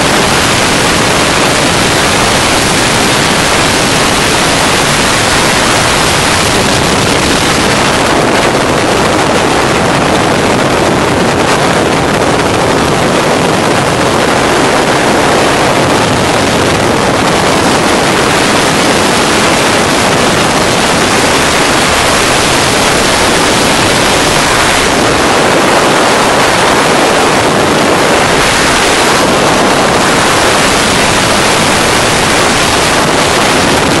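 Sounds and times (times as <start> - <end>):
engine droning: 0.0 - 34.0
wind rushing over microphone: 0.0 - 34.0.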